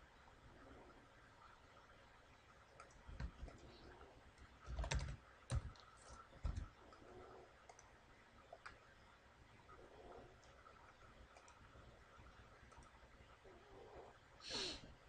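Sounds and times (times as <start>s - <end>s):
computer keyboard keystrokes: 4.6s - 6.7s.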